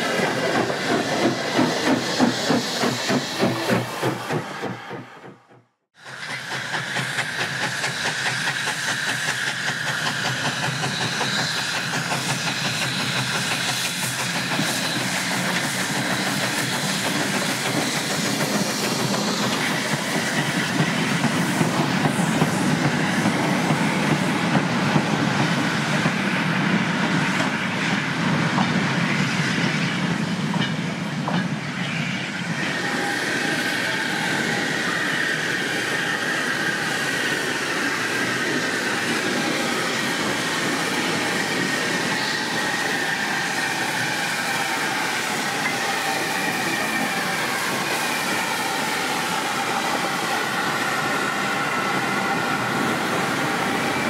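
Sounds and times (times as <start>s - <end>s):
steam hiss: 0.0s - 5.3s, 6.0s - 54.0s
high steady squeal: 6.2s - 24.7s, 31.6s - 54.0s.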